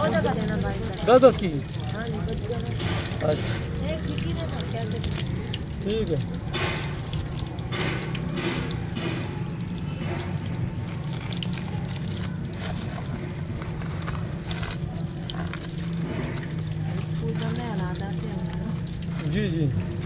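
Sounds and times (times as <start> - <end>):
chips sizzling in hot oil: 0.0 - 20.0
utensils clicking and knocking: 6.2 - 11.5.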